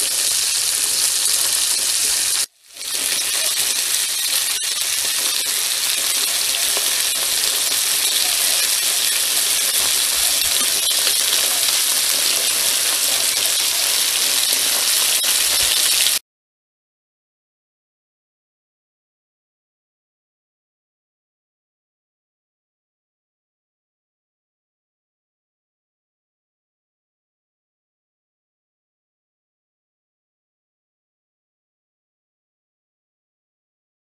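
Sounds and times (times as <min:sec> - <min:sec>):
faint crackles: 0:00.0 - 0:16.2
food sizzling on a grill: 0:00.0 - 0:16.2.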